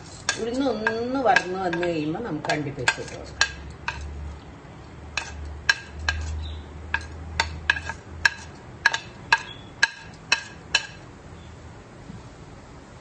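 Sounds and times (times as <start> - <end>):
lentils popping in hot oil: 0.0 - 4.1, 5.1 - 11.0
low steady hum: 0.0 - 13.0.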